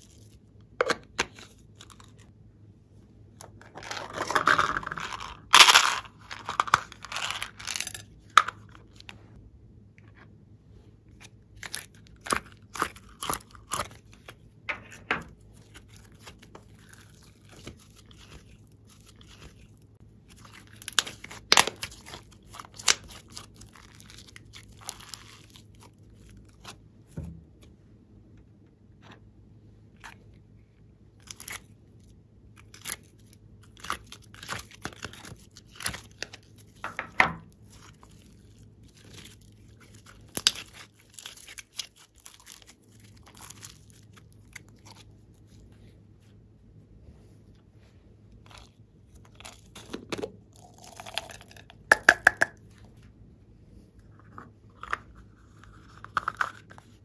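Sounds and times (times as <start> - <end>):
slime squishing: 11.1 - 27.8, 31.2 - 46.4, 48.3 - 53.0.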